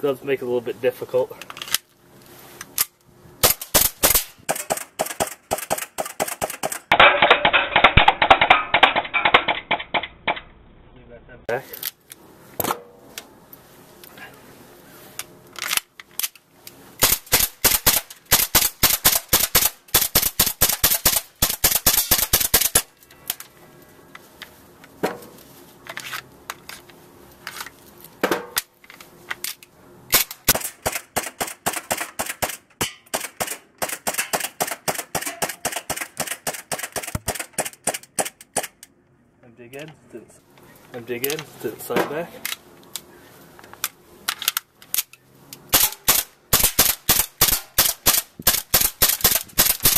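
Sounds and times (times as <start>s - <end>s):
airsoft pistol shots: 3.4s - 10.0s, 17.0s - 22.9s, 45.7s - 49.9s.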